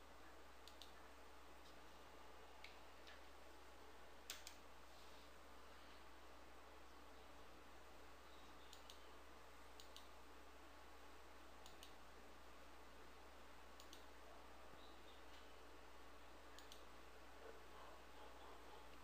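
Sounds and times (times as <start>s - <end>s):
low steady hum: 0.0s - 19.0s
computer mouse clicks: 0.6s - 1.0s, 4.3s - 4.6s, 8.6s - 9.1s, 9.7s - 10.2s, 11.6s - 12.0s, 13.8s - 14.2s, 16.5s - 16.9s.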